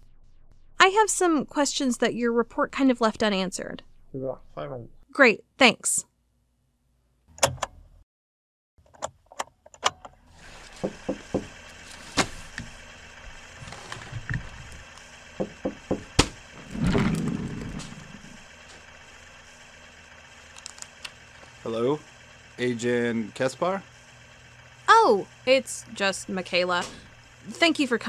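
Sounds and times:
steady room hum: 0:10.2 - 0:28.0
knocks and clicks: 0:10.8 - 0:11.6, 0:15.4 - 0:18.4.

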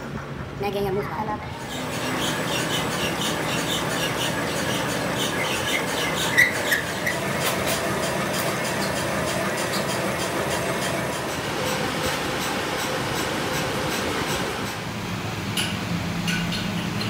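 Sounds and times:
high squeak: 0:01.6 - 0:11.2
metal lathe running: 0:01.6 - 0:15.2.

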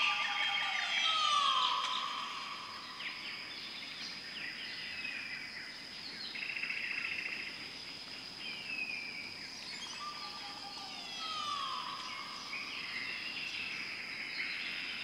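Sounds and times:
descending bird whistle: 0:00.0 - 0:03.2, 0:09.9 - 0:13.2
bird trill: 0:00.0 - 0:04.0, 0:09.7 - 0:13.8
birds calling: 0:00.0 - 0:07.4, 0:08.5 - 0:15.0
high insect drone: 0:00.0 - 0:15.0.

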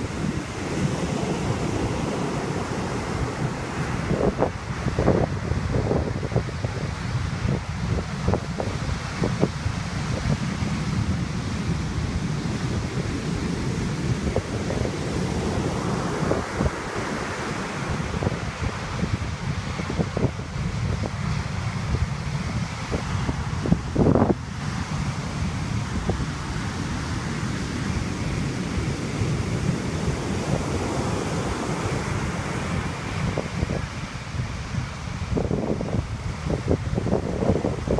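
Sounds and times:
surf breaking on beach: 0:00.0 - 0:37.9
wind buffeting microphone: 0:00.0 - 0:37.9.

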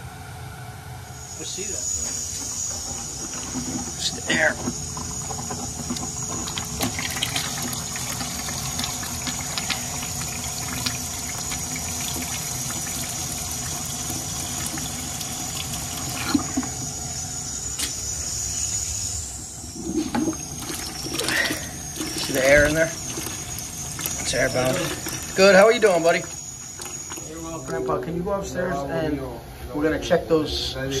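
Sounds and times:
water splashing into plastic bucket: 0:02.9 - 0:16.8, 0:20.1 - 0:27.3.

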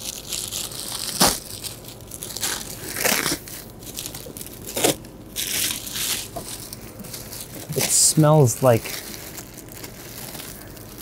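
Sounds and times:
plastic wrapping crinkling: 0:00.0 - 0:11.0.

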